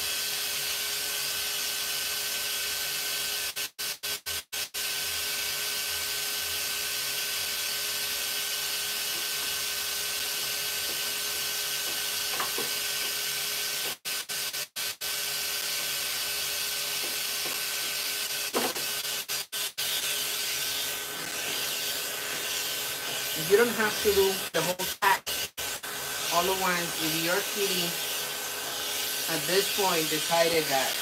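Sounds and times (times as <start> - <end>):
electric hair clippers buzzing: 0.0 - 31.0.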